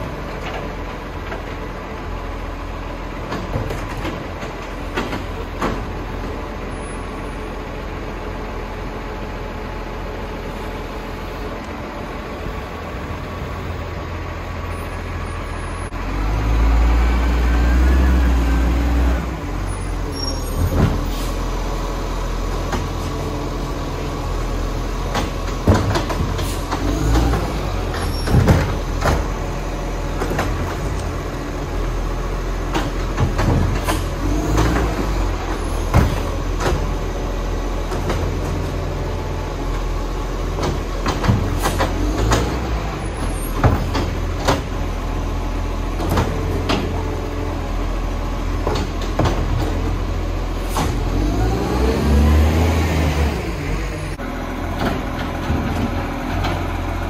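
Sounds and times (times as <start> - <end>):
garbage truck engine running: 0.0 - 57.0
knocks and clanks: 3.2 - 6.4, 25.1 - 29.5, 30.1 - 31.0, 32.7 - 37.0, 40.5 - 44.8, 46.0 - 47.1, 48.6 - 50.0.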